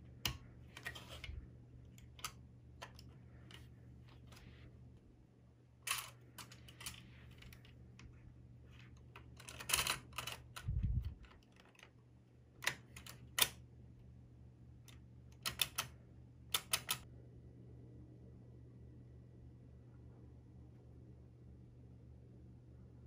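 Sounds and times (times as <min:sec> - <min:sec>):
metal and plastic clicks: 0:16.5 - 0:17.0.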